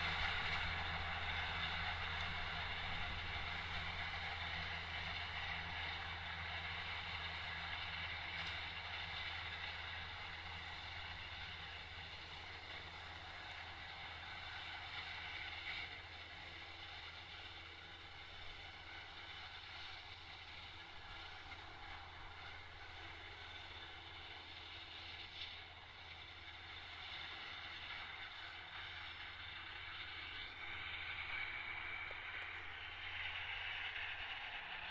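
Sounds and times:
tractor engine drone: 0:00.0 - 0:34.9
mowers cutting grass hiss: 0:16.5 - 0:34.8.

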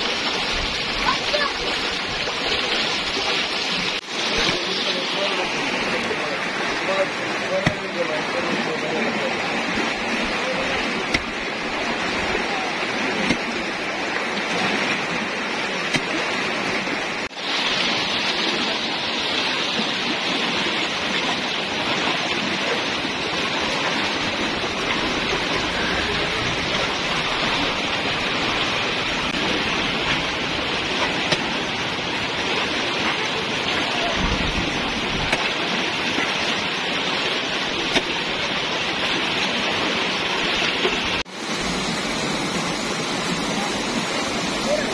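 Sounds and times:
floodwater rushing: 0:00.0 - 0:44.9
small knocks and splashes: 0:06.9 - 0:08.7, 0:09.6 - 0:17.4, 0:28.6 - 0:41.2.

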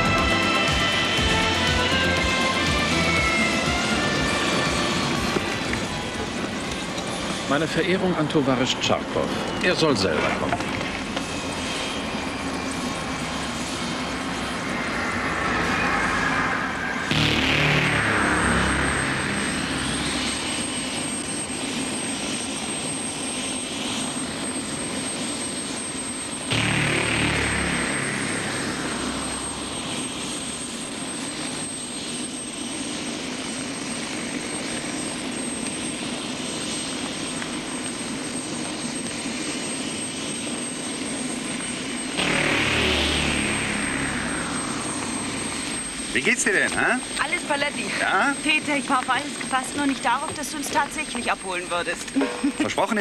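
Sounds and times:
high engine whine: 0:00.0 - 0:53.0
jet engines rushing: 0:00.0 - 0:53.0.

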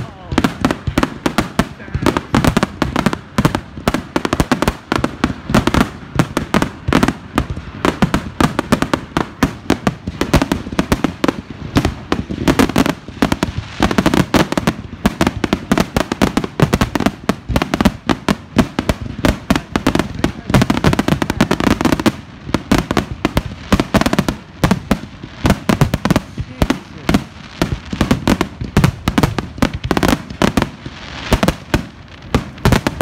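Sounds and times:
fireworks bursting and crackling: 0:00.0 - 0:33.0.

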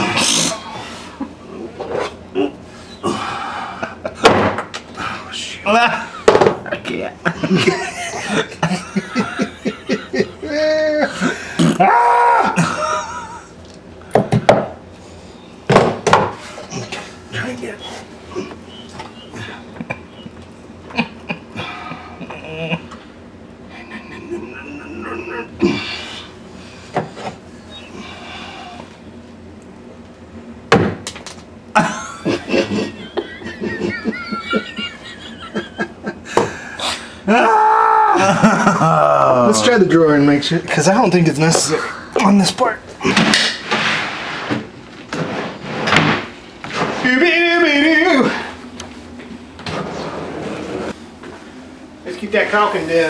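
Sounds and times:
person's wavering exclamation: 0:10.4 - 0:12.8, 0:37.3 - 0:39.9
drawer sliding on metal slides: 0:49.6 - 0:50.9.

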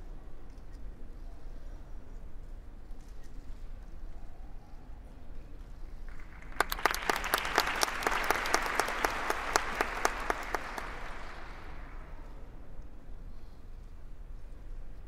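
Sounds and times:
spectators applauding: 0:06.1 - 0:12.2.

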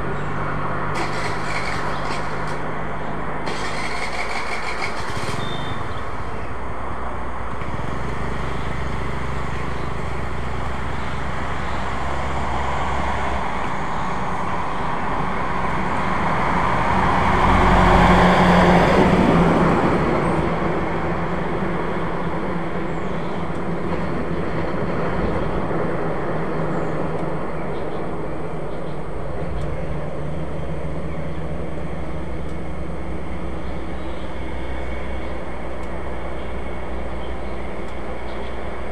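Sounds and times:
vehicle engine passing: 0:00.0 - 0:22.4
road noise: 0:00.0 - 0:38.9
truck engine rumble: 0:00.0 - 0:38.9.

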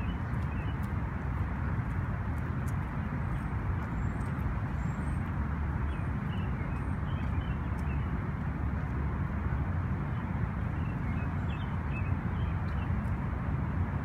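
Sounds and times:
city traffic rumble: 0:00.0 - 0:14.0.

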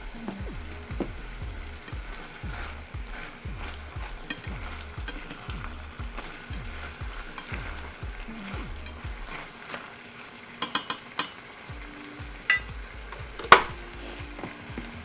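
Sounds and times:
spatula stirring: 0:00.0 - 0:09.6
seafood sizzling in a pan: 0:00.0 - 0:15.0.

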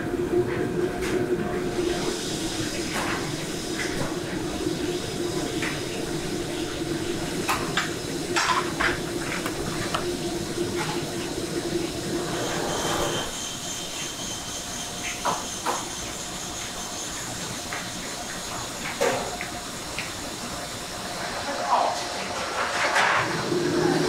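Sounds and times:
kitchen machinery drone: 0:00.0 - 0:24.0.

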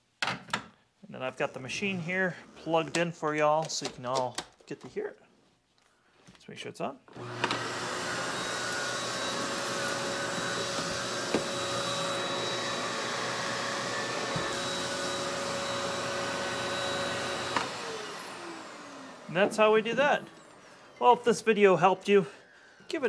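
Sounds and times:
vacuum cleaner whining: 0:07.1 - 0:23.0
motor winding down: 0:07.2 - 0:20.8.

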